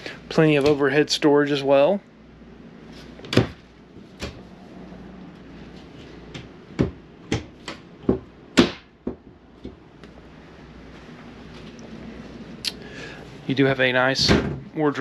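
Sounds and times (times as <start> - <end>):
cabinet doors clicking and knocking: 3.2 - 3.6, 6.3 - 9.8, 14.2 - 14.7.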